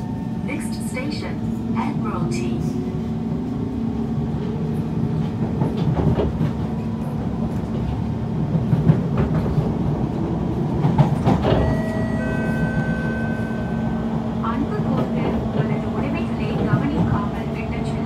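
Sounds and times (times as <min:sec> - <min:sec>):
train wheels rumbling: 0:00.0 - 0:18.0.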